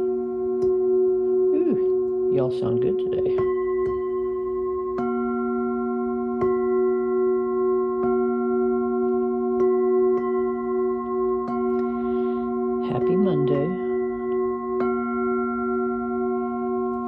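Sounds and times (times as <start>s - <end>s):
singing bowls ringing: 0.0s - 17.0s
mallet tapping bowl: 0.5s - 1.0s, 3.3s - 12.0s.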